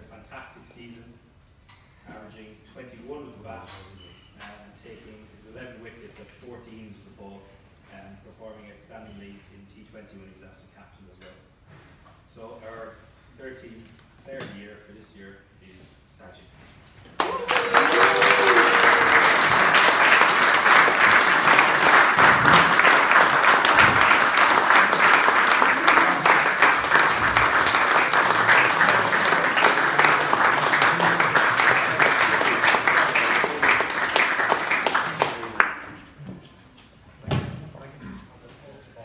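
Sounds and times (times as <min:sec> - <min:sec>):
crowd applauding: 0:17.2 - 0:35.9.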